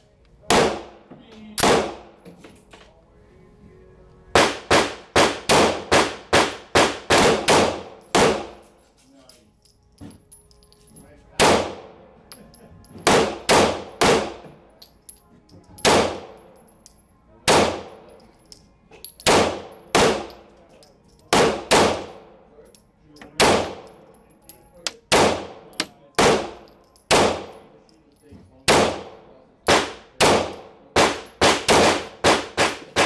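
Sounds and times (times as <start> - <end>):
pistol shots echoing: 0.5 - 1.0, 1.6 - 2.1, 4.4 - 8.6, 11.4 - 12.0, 13.0 - 14.4, 15.8 - 16.4, 17.4 - 18.0, 19.2 - 20.4, 21.3 - 22.3, 23.4 - 24.0, 24.9 - 27.6, 28.7 - 33.0.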